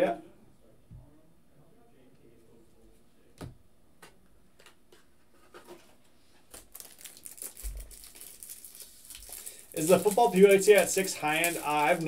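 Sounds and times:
cards crinkling and rustling: 6.4s - 12.0s
trading cards clicking and tapping: 9.8s - 12.0s.

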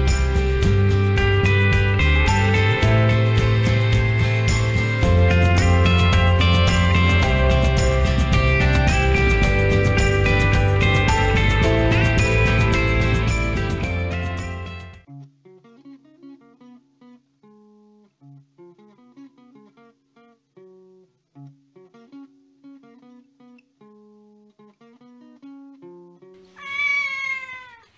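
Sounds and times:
loud music: 0.0s - 15.0s
plucked guitar melody: 0.0s - 26.4s.

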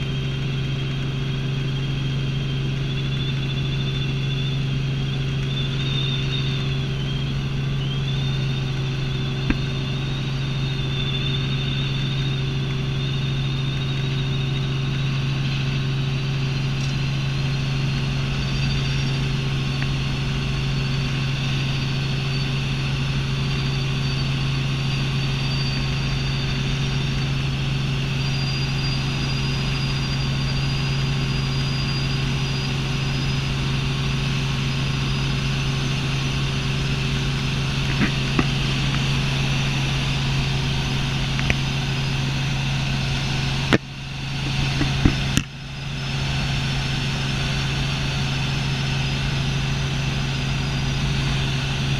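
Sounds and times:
helicopter engine and rotor drone: 0.0s - 51.9s
high whine: 0.0s - 51.9s.

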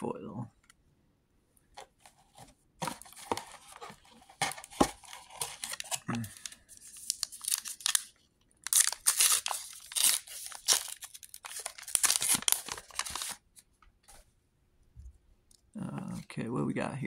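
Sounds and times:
paper wrapper tearing and crinkling: 2.8s - 13.4s.

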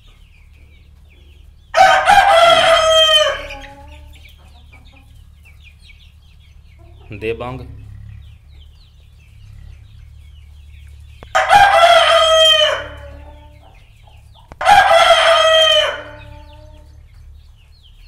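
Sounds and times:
chicks cheeping: 0.0s - 18.0s
rooster crowing: 1.7s - 4.1s, 11.3s - 13.7s, 14.6s - 16.9s.

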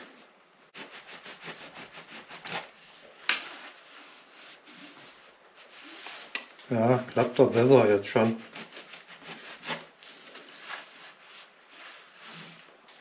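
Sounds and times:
rubbing on thick fabric: 0.7s - 6.3s, 7.1s - 12.6s
fabric scrape: 0.8s - 6.3s, 7.2s - 13.0s.

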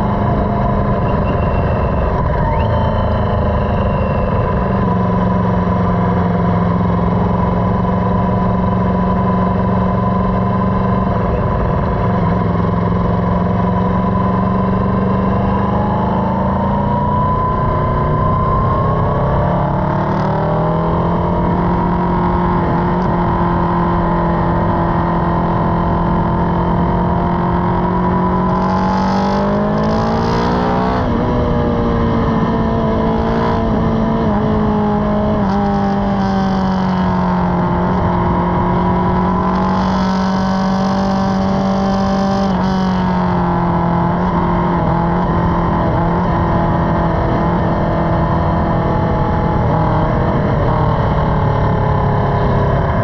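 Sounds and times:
motorcycle engine cruising: 0.0s - 53.0s.

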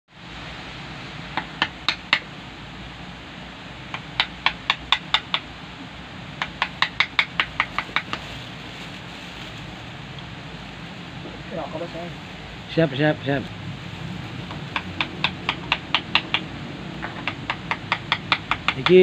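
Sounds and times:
chisel knocking into wood: 6.4s - 8.2s, 14.5s - 19.0s.

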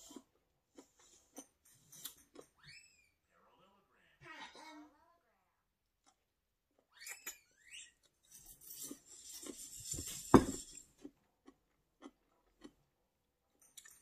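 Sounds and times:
slurping noodles: 8.4s - 11.0s
soft chewing clicks: 11.0s - 12.9s.

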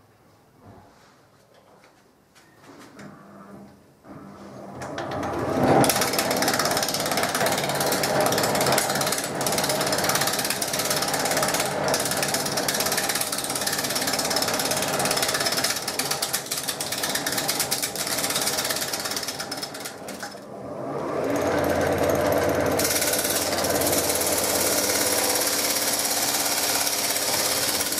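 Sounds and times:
power tool cutting wood: 5.6s - 27.9s.

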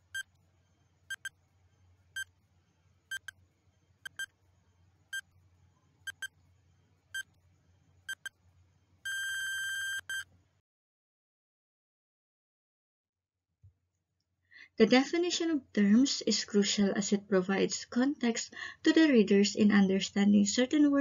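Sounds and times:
electronic alarm ringing: 1.1s - 1.3s, 3.1s - 3.3s, 4.1s - 4.3s, 6.1s - 6.3s, 8.1s - 8.3s, 9.1s - 10.2s
timer ticking: 1.1s - 1.3s, 3.1s - 3.3s, 4.1s - 4.3s, 6.1s - 6.3s.

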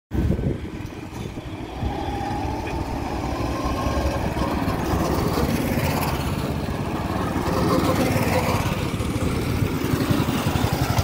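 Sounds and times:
go-kart engines running: 0.2s - 11.0s.

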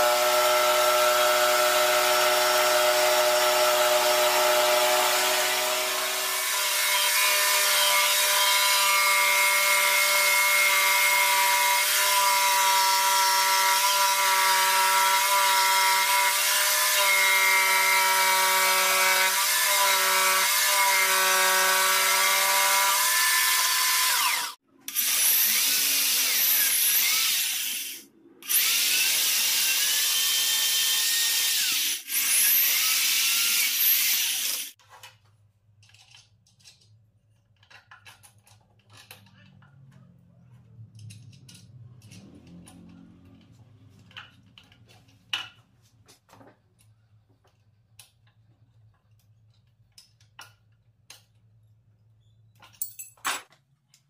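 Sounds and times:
electric saw cutting wood: 0.0s - 34.8s.

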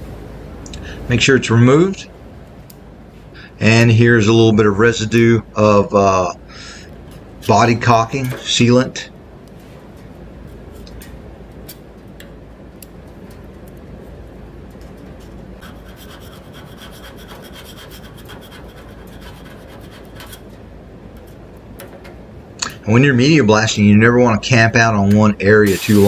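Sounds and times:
scraping on steel: 15.6s - 20.6s.

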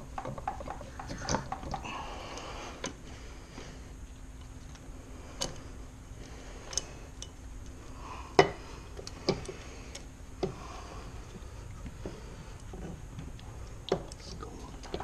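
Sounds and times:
metal clicks and knocks: 0.0s - 1.9s.

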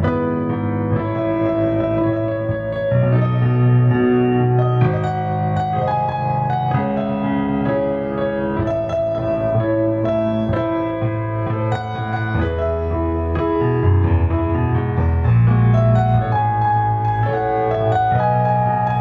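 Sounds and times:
slow piano melody: 0.0s - 19.0s.

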